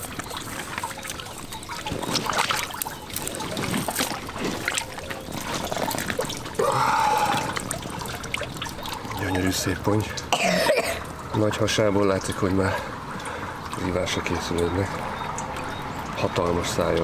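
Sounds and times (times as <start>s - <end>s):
water trickling and splashing: 0.0s - 17.0s.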